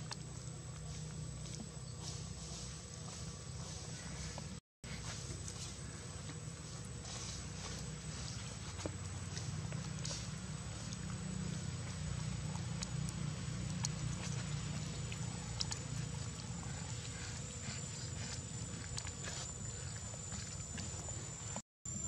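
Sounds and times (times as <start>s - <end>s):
steady low rumble: 0.0s - 21.6s.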